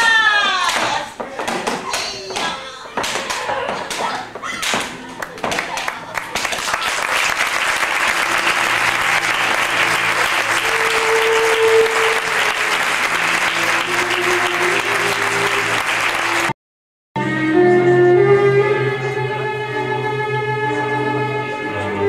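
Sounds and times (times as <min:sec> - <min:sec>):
audience applauding: 0:05.2 - 0:16.6
quiet music: 0:07.9 - 0:16.4, 0:17.2 - 0:22.0.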